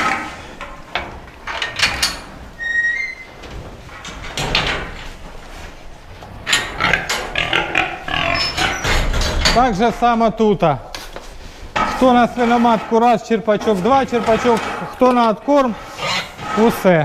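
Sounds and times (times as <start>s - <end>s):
steel crate fittings rattling: 0.0s - 17.0s
metal bucket clattering and knocking: 11.7s - 15.8s.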